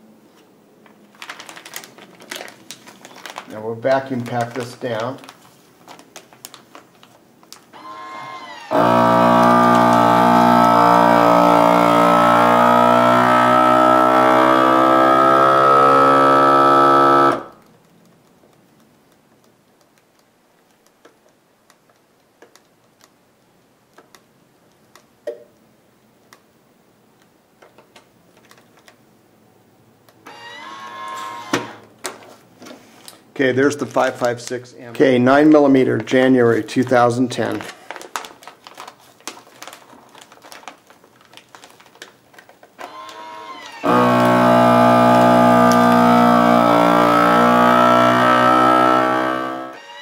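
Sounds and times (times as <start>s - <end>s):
vacuum sealer pump motor humming: 7.8s - 17.6s, 30.3s - 31.8s, 42.8s - 50.0s.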